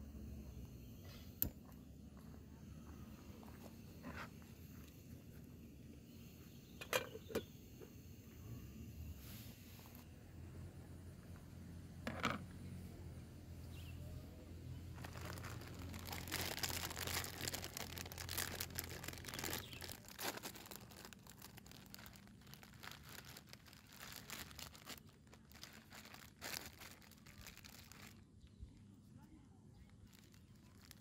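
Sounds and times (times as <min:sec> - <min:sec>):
low steady hum: 0:00.0 - 0:31.0
plastic packet crinkling: 0:15.0 - 0:28.2, 0:29.9 - 0:31.0.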